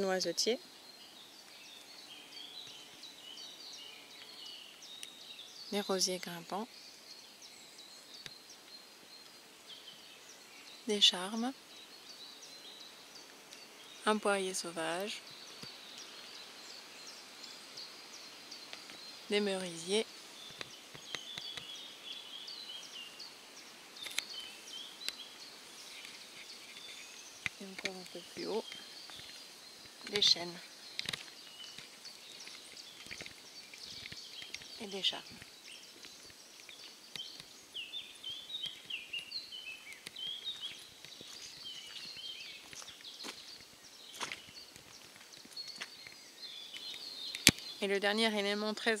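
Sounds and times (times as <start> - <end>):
faint outdoor hiss: 0.0 - 49.0
small bird singing: 0.0 - 49.0
light ticks: 15.0 - 16.1
droppings ticking on leaves: 24.0 - 47.9.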